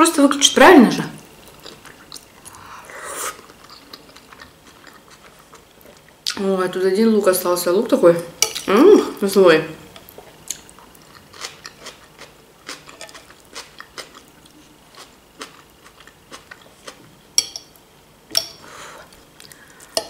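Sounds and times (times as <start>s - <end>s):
crunchy chewing: 3.3s - 6.1s, 10.1s - 17.0s.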